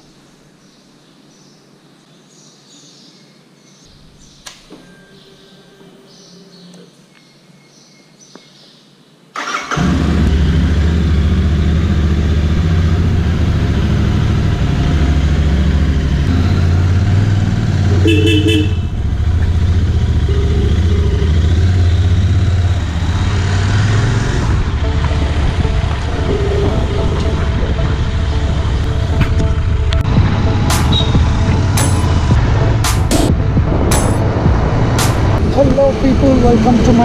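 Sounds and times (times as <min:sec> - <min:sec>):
motorcycle engine running: 0:09.8 - 0:37.0
horn beep: 0:17.9 - 0:19.0, 0:20.0 - 0:22.1, 0:24.8 - 0:30.0, 0:30.7 - 0:31.8.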